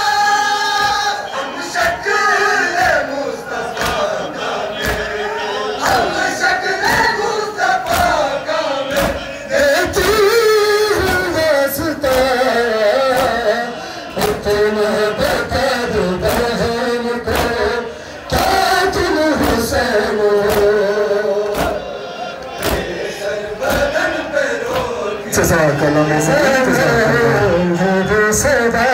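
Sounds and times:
crowd murmur: 0.0s - 9.8s, 21.4s - 28.3s
men chanting a lament: 0.0s - 28.9s
hands slapping chests: 3.8s - 4.2s, 4.8s - 5.2s, 7.8s - 8.3s, 8.9s - 9.2s, 9.9s - 10.3s, 12.0s - 12.4s, 13.1s - 13.4s, 14.2s - 14.5s, 16.2s - 16.6s, 17.2s - 17.7s, 18.3s - 19.7s, 20.4s - 20.8s, 21.4s - 21.8s, 22.5s - 23.0s, 24.6s - 25.0s.

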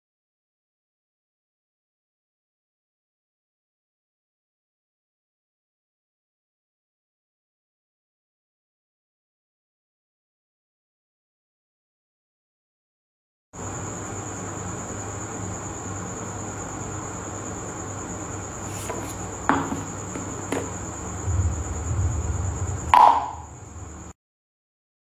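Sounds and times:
steady background hiss: 13.6s - 24.1s
high-pitched whine: 19.0s - 24.2s.

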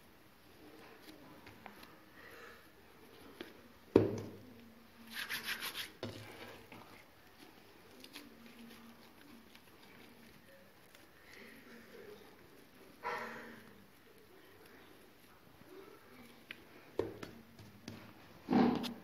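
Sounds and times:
hands working dough: 0.0s - 19.0s
quick rubbing strokes: 5.0s - 6.1s.

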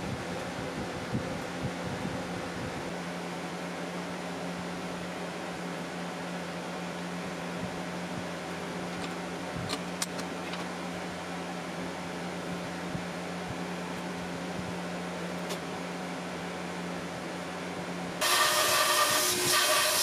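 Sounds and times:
shop machinery hum: 0.0s - 20.0s
band saw running and cutting: 18.2s - 20.0s.

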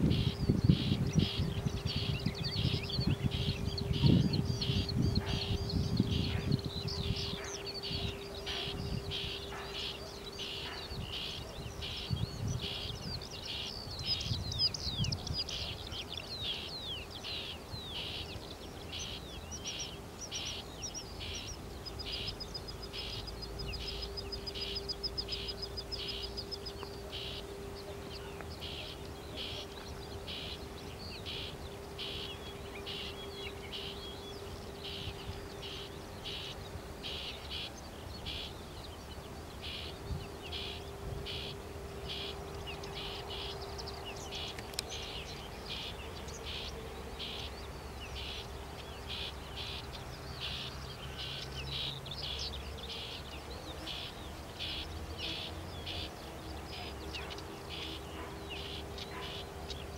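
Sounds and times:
fast high bird trill: 0.0s - 15.9s
songbirds chirping: 0.0s - 59.9s.

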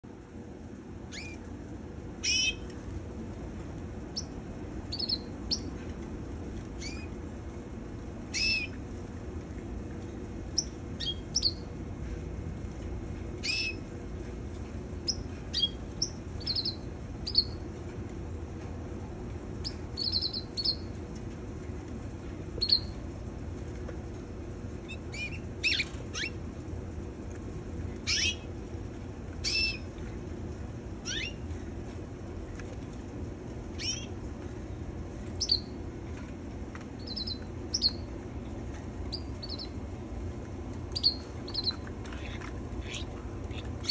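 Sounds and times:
low background hum: 0.0s - 43.9s
canaries chirping: 1.1s - 1.4s, 2.2s - 2.7s, 4.1s - 5.8s, 6.8s - 7.1s, 8.3s - 8.8s, 10.6s - 11.7s, 13.4s - 13.9s, 15.0s - 17.6s, 19.6s - 20.9s, 22.6s - 23.0s, 24.8s - 26.4s, 28.0s - 28.5s, 29.4s - 29.9s, 31.0s - 31.4s, 33.8s - 34.2s, 35.4s - 35.8s, 37.0s - 38.1s, 39.1s - 39.8s, 40.9s - 43.9s.

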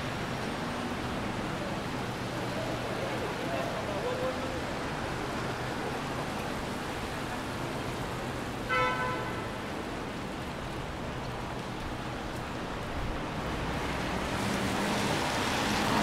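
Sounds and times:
traffic on wet street: 0.0s - 16.0s
car horn toot: 8.7s - 9.4s.

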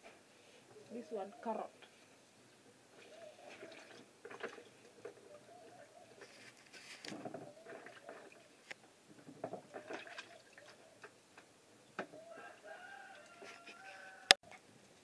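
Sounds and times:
faint wavering calls: 2.6s - 4.0s, 4.8s - 6.5s, 7.4s - 8.6s
small knocks: 9.1s - 10.0s.

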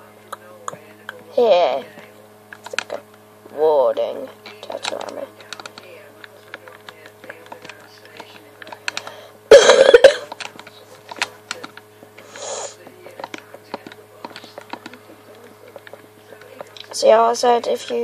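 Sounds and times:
person coughing: 9.5s - 10.3s.

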